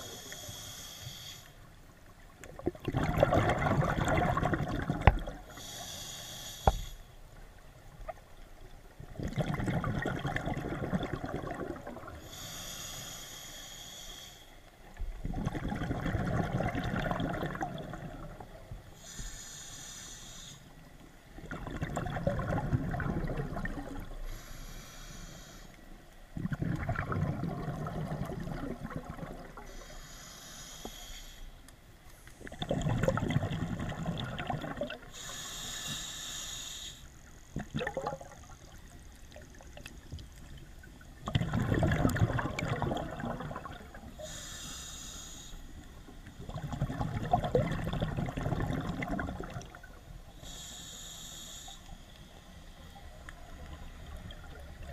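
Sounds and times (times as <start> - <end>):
regulator inhale hiss: 0.0 - 1.8, 5.4 - 7.4, 12.2 - 15.0, 18.9 - 21.0, 24.1 - 26.0, 29.6 - 32.5, 35.0 - 37.4, 44.1 - 46.2, 50.3 - 54.2
exhaled bubbles underwater: 2.3 - 5.7, 8.1 - 12.3, 15.0 - 18.8, 21.3 - 24.2, 26.3 - 29.7, 32.4 - 35.2, 37.5 - 44.4, 46.2 - 50.6, 53.2 - 54.9.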